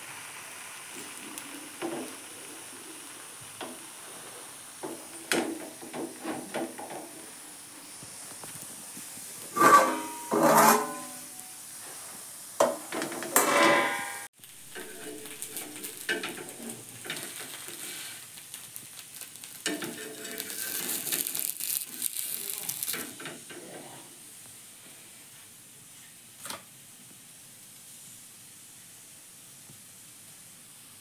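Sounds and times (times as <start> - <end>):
dosa sizzling on a hot pan: 0.0 - 31.0
metal spatula scraping: 9.4 - 11.4, 13.3 - 18.2, 19.6 - 24.0
metal lid clattering: 9.5 - 11.3, 12.6 - 17.4.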